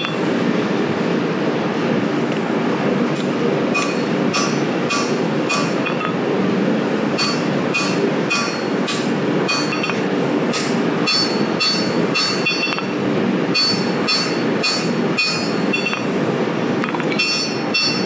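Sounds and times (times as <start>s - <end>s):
hammer striking blade on anvil: 3.8s - 6.1s, 7.2s - 13.0s, 13.6s - 16.1s, 17.1s - 18.0s.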